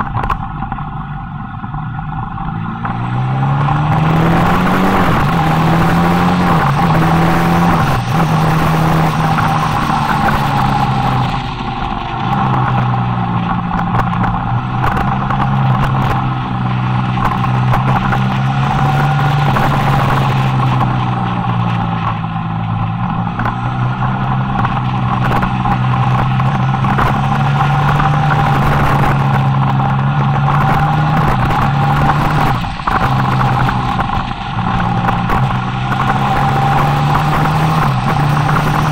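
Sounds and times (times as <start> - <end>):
motorcycle engine revving: 0.0 - 38.9
wind rushing over microphone: 0.0 - 38.9.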